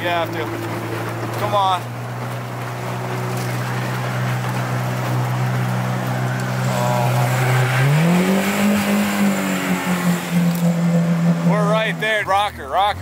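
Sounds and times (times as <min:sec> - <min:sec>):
outboard motor revving: 0:00.0 - 0:13.0.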